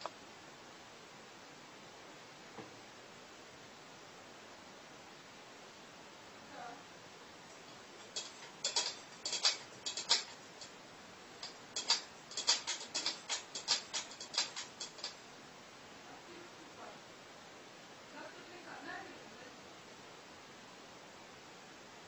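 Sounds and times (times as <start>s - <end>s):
cat claws clicking on metal bowl: 7.7s - 10.8s, 11.4s - 15.2s.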